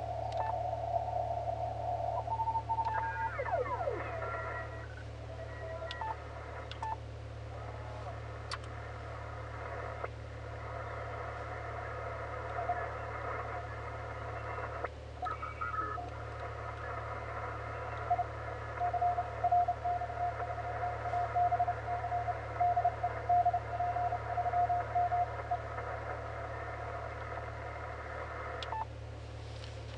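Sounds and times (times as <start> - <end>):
radio receiver hiss: 0.0 - 29.9
morse code tone: 17.7 - 25.7.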